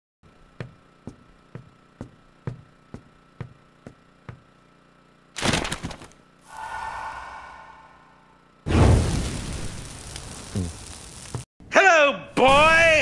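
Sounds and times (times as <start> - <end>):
whoosh with ringing tone: 6.5 - 8.6.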